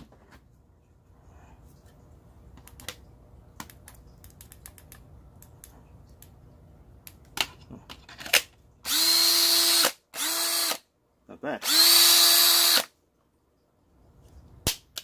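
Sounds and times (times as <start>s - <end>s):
cordless drill motor spinning: 8.8s - 10.8s, 11.6s - 12.9s.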